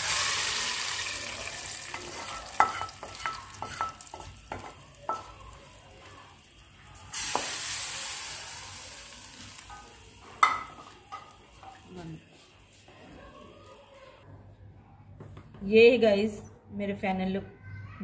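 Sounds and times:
hot oil sizzling in pot: 0.0 - 12.8
spoon tapping and scraping metal pan: 1.9 - 5.4, 9.6 - 11.9.

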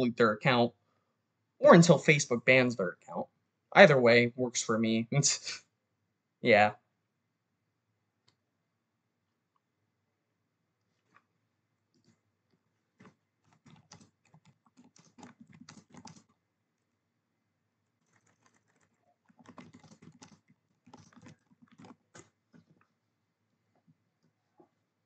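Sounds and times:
faint keyboard typing: 11.9 - 16.9, 17.8 - 23.0.

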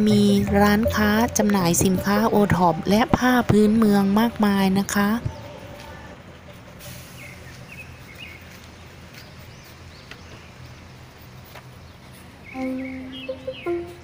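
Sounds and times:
music with long held notes: 0.0 - 4.6, 12.6 - 14.0
faint bird chirps: 12.5 - 14.0.

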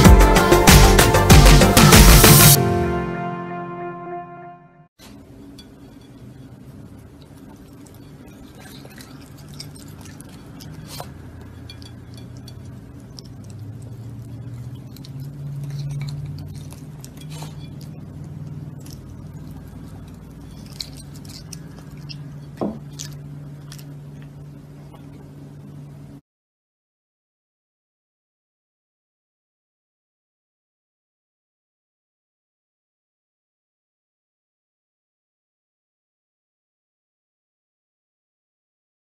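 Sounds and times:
steady low hum: 5.0 - 26.2
animal licking and chewing: 5.9 - 25.4.

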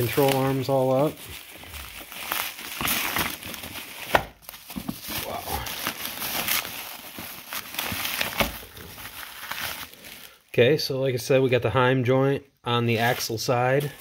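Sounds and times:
bubble wrap crinkling: 0.0 - 10.5.

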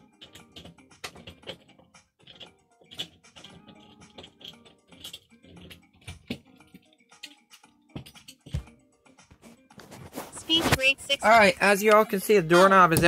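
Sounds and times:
screwdriver and doorknob parts clinking: 0.0 - 8.8.

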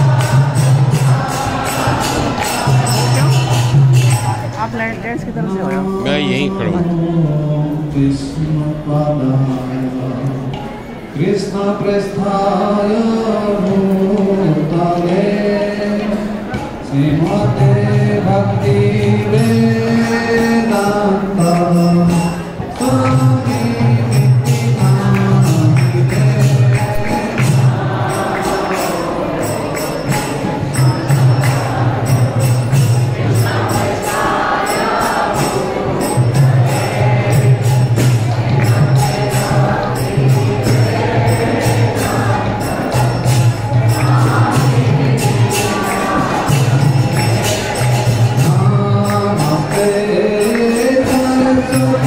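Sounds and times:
group chanting: 0.0 - 4.3, 24.4 - 52.0
hand cymbals clashing: 0.0 - 4.7, 18.6 - 52.0.

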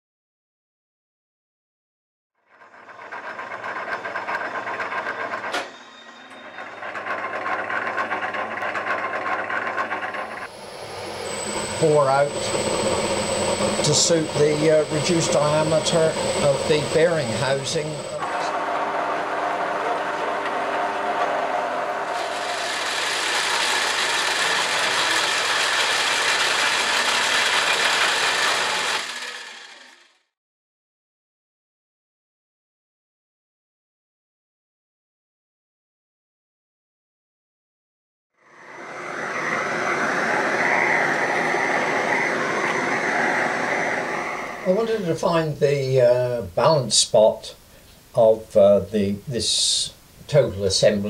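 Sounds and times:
drill press motor hum: 2.5 - 30.3, 38.4 - 45.1
metal lathe cutting: 2.6 - 30.2, 38.5 - 45.2.

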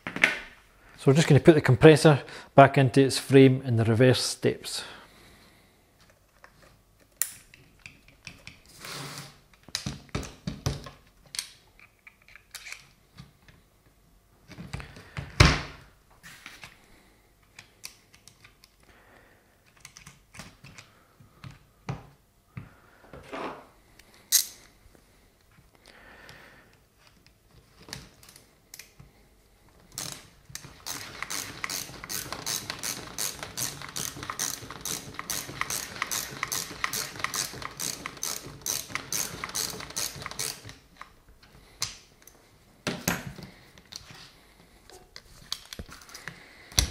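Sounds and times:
socket ratchet clicking: 30.8 - 40.8.

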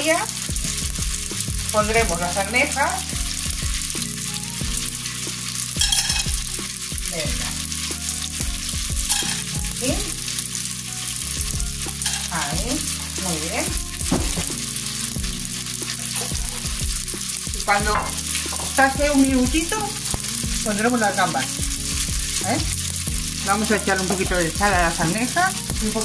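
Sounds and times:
oil sizzling in frying pans: 0.0 - 26.0
clams laid into pan: 11.9 - 12.3.

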